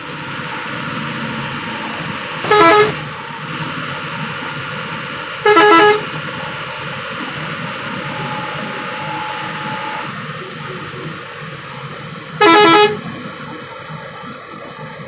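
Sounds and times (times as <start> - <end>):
bus engine and tyres droning: 0.0 - 15.0
bus horn blasts: 2.4 - 3.1, 5.4 - 6.2, 12.3 - 13.1.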